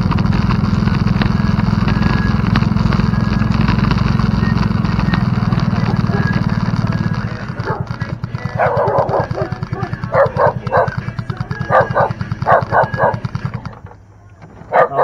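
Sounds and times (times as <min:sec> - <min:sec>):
low pulsing hum: 0:00.0 - 0:15.0
dog barking: 0:05.7 - 0:06.5, 0:07.5 - 0:13.4, 0:14.7 - 0:15.0.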